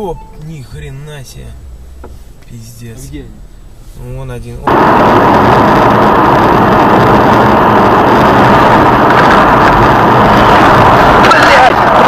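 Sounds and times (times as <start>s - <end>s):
road noise: 0.0s - 12.0s
vehicle engine: 0.0s - 12.0s.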